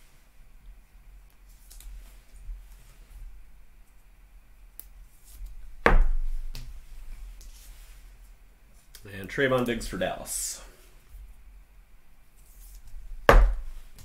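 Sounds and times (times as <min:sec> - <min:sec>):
loud knock: 0:13.3 - 0:13.7.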